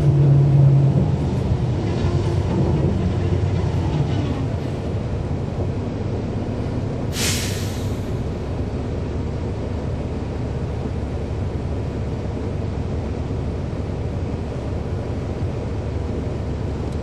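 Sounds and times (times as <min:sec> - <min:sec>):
bus diesel engine rumbling: 0:00.0 - 0:17.0
air hiss: 0:07.1 - 0:08.2.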